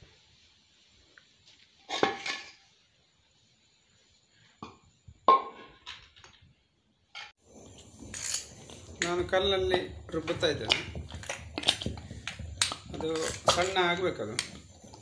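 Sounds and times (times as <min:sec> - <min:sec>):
stone roller knocking and scraping: 0:07.2 - 0:15.0.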